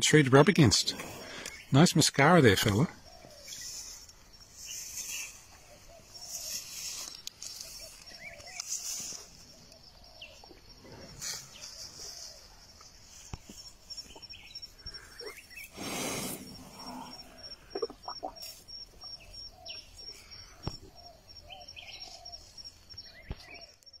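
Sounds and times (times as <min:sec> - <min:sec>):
outdoor ambience: 0:00.0 - 0:24.0
high fast animal chirping: 0:16.8 - 0:19.7.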